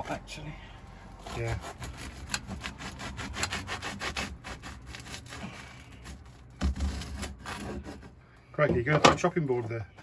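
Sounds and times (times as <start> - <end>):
serrated knife sawing crusty bread: 1.1 - 8.1.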